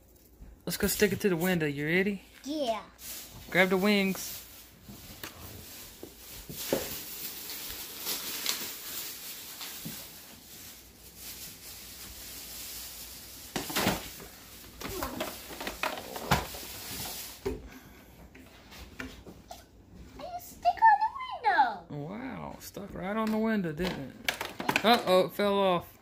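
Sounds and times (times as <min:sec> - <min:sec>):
plastic toy handling: 0:13.6 - 0:17.3, 0:23.8 - 0:25.2.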